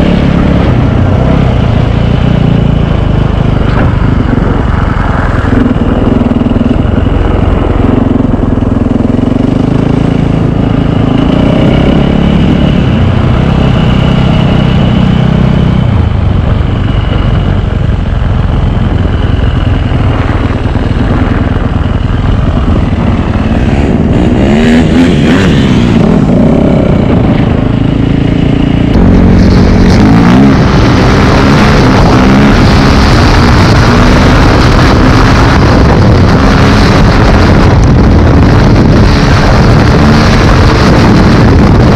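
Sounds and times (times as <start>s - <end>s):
wind on microphone: 0.0s - 41.9s
motocross bike engine revving: 22.6s - 41.9s.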